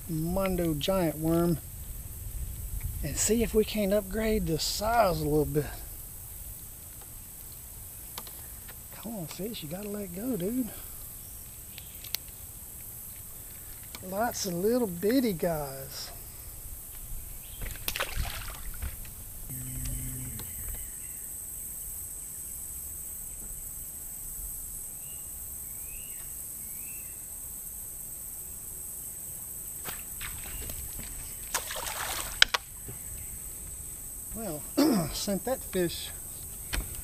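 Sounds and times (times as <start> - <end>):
insect buzz: 0.0 - 37.0
low hum: 19.3 - 20.9.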